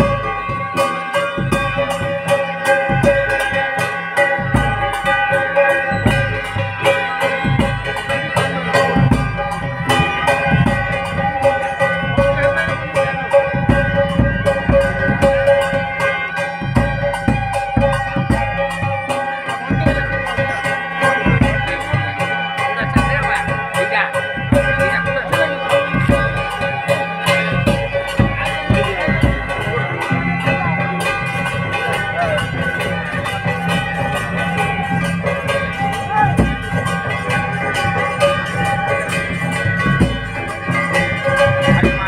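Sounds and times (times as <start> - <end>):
drums beating fast rhythm: 0.0 - 42.0
long held melody notes: 0.0 - 42.0.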